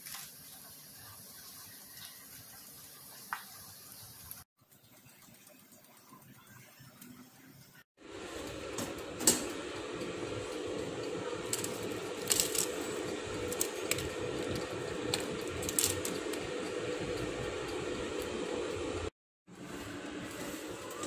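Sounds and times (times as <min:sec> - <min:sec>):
air fryer humming: 0:08.0 - 0:21.0.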